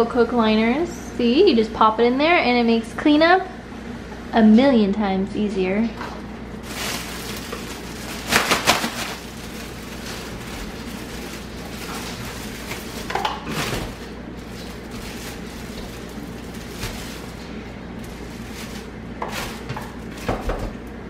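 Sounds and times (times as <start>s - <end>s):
plastic liner crinkling: 6.6s - 20.8s.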